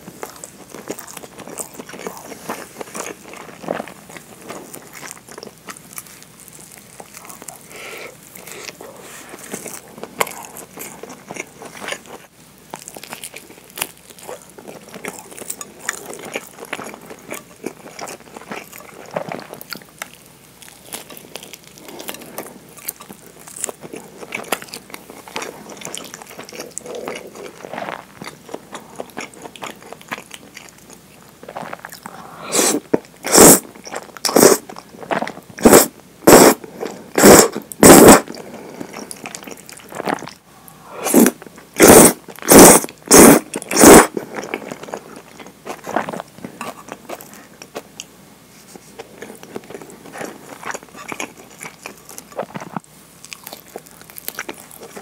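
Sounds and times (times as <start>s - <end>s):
chewing rice ball: 0.0s - 55.0s
loud short slurps of noodles: 32.4s - 33.6s, 35.6s - 36.6s, 40.9s - 44.1s.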